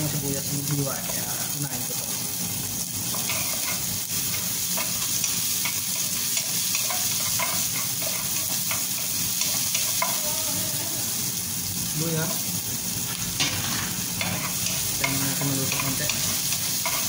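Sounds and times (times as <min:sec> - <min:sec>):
onions sizzling in frying pan: 0:00.0 - 0:17.0
spatula scraping and stirring: 0:03.1 - 0:10.3, 0:13.5 - 0:17.0.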